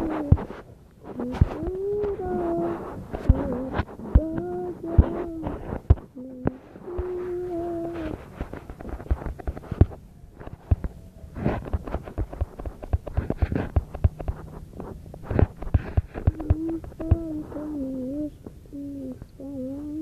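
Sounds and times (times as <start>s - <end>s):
clicks and taps of craft work: 7.8s - 17.4s.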